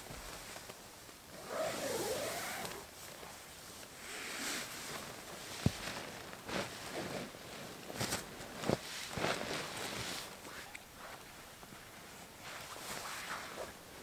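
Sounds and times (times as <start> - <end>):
tent fabric rustling: 0.0 - 14.0
zipper being pulled: 1.4 - 2.9.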